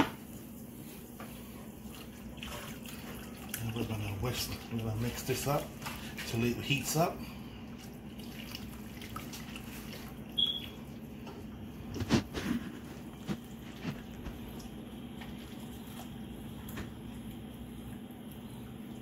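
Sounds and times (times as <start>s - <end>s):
steady low hum: 0.0s - 19.0s
short high squeak: 10.4s - 10.7s.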